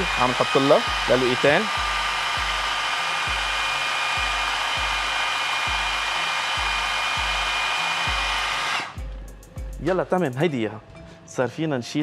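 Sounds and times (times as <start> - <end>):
food processor motor whining: 0.0 - 9.1.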